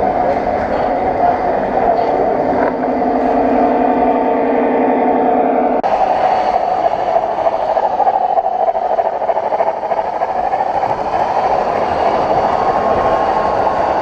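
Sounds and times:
model train rattling on track: 5.9s - 14.0s.

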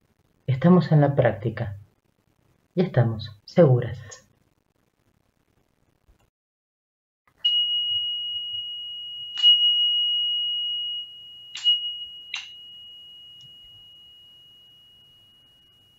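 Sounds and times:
meditation bell ringing: 7.4s - 15.9s.

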